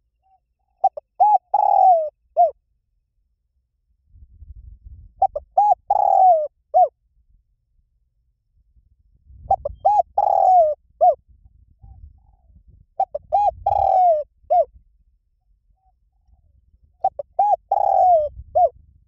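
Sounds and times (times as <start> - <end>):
dove cooing: 0.7 - 2.6, 5.2 - 6.9, 9.5 - 11.2, 11.9 - 14.7, 17.0 - 18.8.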